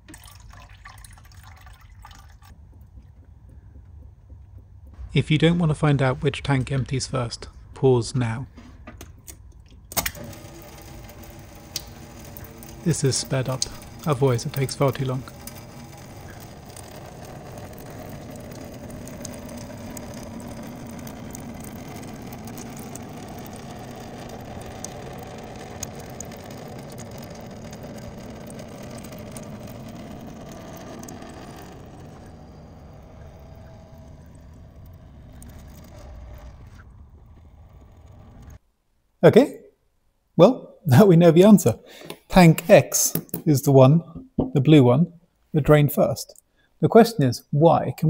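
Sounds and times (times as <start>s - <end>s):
water running into a sink: 0.0s - 2.6s, 10.0s - 36.6s.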